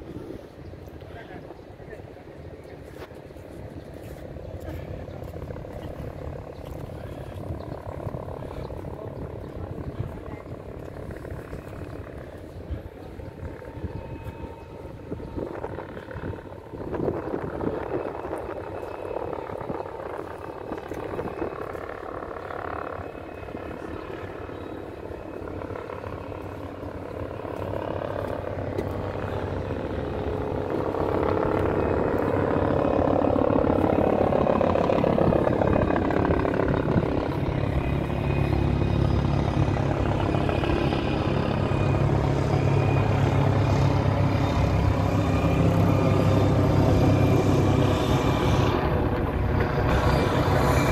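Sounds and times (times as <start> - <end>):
heavy engine droning: 26.1 - 50.9.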